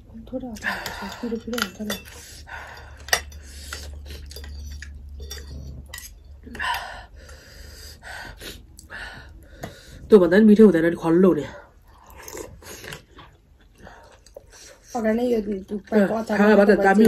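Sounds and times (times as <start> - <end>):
soft eating sounds: 0.0 - 10.2, 11.3 - 17.0
cutlery clinking on ceramic bowls: 0.7 - 6.6.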